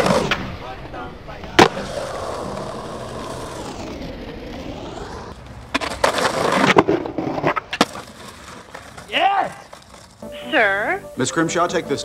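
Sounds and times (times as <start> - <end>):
skateboard wheels rolling on concrete: 0.0 - 12.0
skateboard clacks: 5.4 - 10.3.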